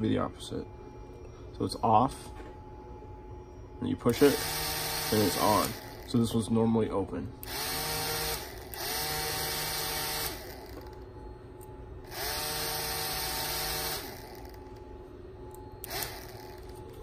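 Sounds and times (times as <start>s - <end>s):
small motor with propeller whirring: 15.8s - 17.0s.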